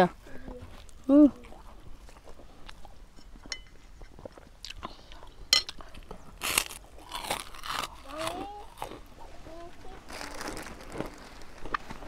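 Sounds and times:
crunchy chewing of cracker: 3.8 - 12.0.

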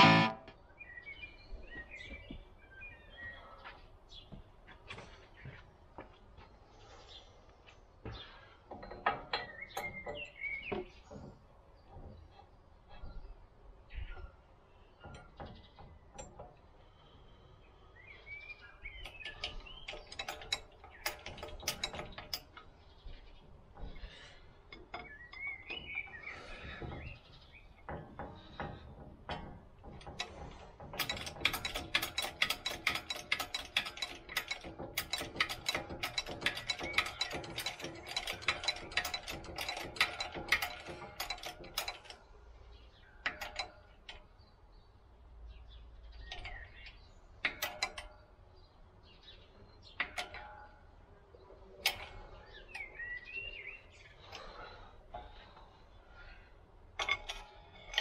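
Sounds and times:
bird chirping: 0.0 - 4.4, 8.0 - 28.8, 40.6 - 56.6
metallic ratchet clicking: 29.9 - 42.2.

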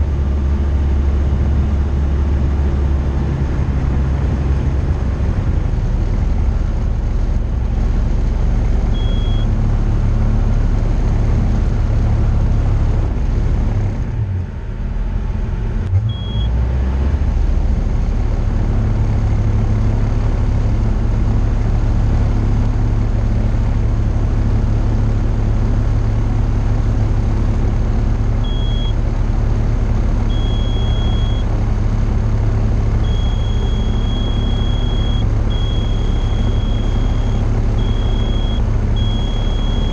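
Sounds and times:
aircraft engine and propeller: 0.0 - 39.9
short high beeps: 9.0 - 9.5, 16.1 - 16.5, 28.5 - 29.0, 30.3 - 31.5, 33.0 - 39.9.

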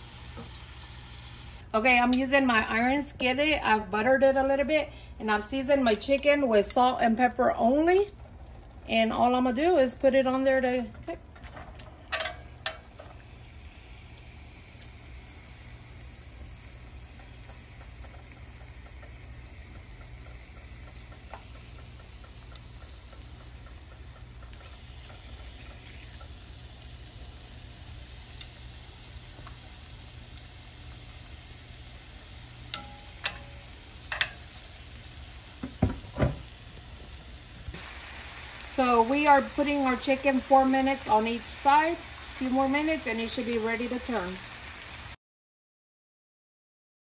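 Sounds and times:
chicken sizzling in grill pan: 0.0 - 1.6, 7.2 - 45.2
metal tongs clicking on pan: 12.1 - 12.9, 32.7 - 34.6.

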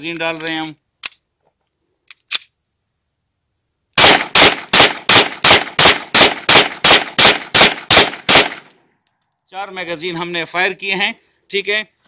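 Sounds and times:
rapid pistol fire: 4.0 - 8.7.

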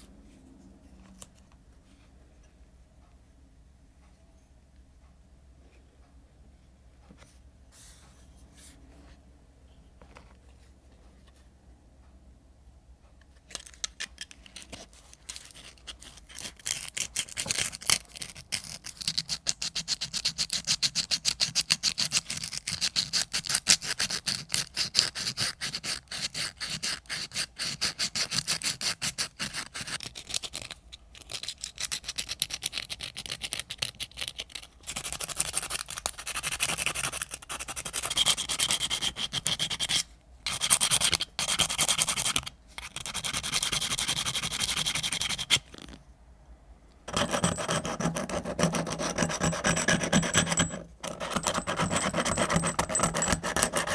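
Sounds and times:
faint handling noise: 7.0 - 11.6
sandpaper scratching on steel: 34.9 - 45.6, 47.1 - 53.9.

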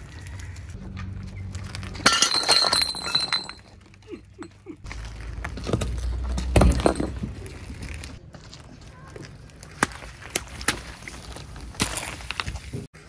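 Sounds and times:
broken glass clinking: 2.0 - 3.8
glass bottles shattering: 2.0 - 3.8, 6.4 - 7.2.

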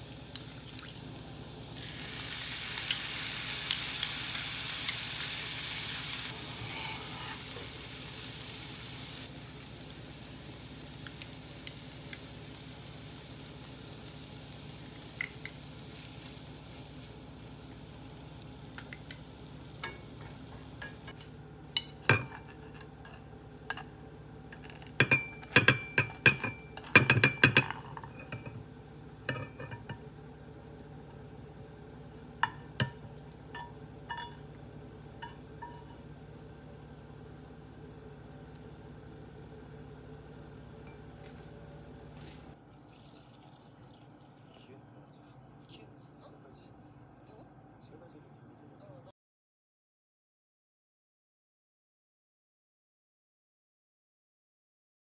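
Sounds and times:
chicken sizzling in a pan: 0.0 - 25.4
chopsticks clinking against pan: 32.4 - 34.4.

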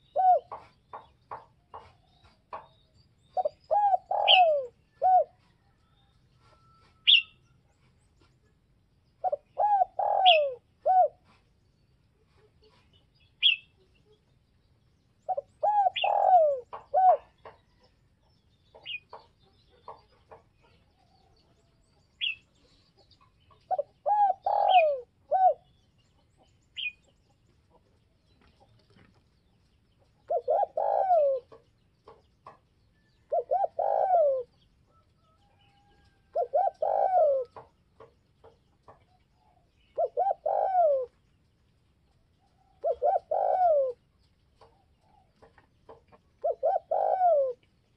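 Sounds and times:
dove cooing: 0.0 - 0.8, 3.4 - 5.7, 9.2 - 11.4, 15.3 - 17.8, 23.7 - 25.7, 30.2 - 32.2, 33.2 - 34.6, 35.4 - 37.7, 39.4 - 41.2, 42.7 - 44.1, 46.4 - 47.6
small birds chirping: 0.0 - 47.9.

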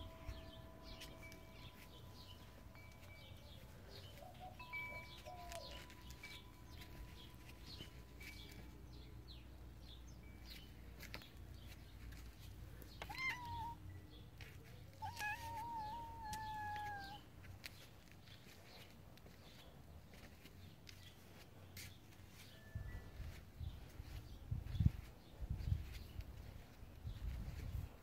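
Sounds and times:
wind chime tones: 0.0 - 9.3
cat meowing: 13.0 - 13.8, 15.0 - 17.2.

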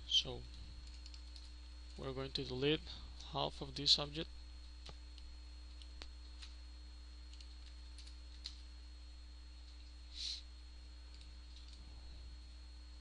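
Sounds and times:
faint high whine: 0.0 - 13.0
low electrical hum: 0.0 - 13.0.

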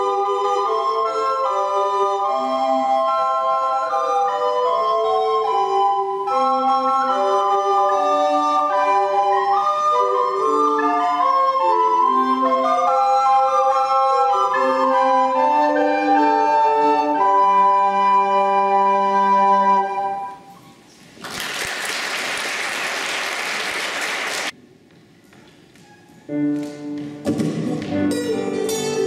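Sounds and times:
recorder ensemble playing: 0.0 - 20.6
audience applause: 21.2 - 24.5
piano: 26.2 - 29.0.

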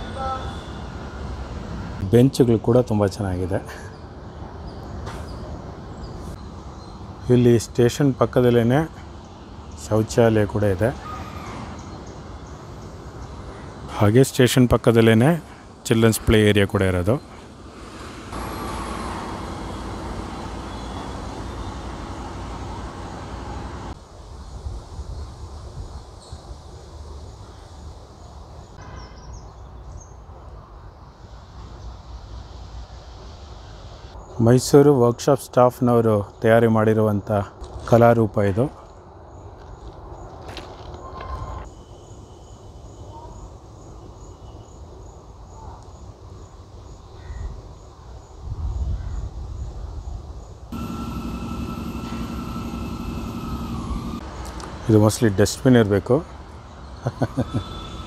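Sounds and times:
insect chirping: 24.0 - 34.4, 41.6 - 54.9, 56.2 - 58.0
low outdoor rumble: 50.7 - 57.1.

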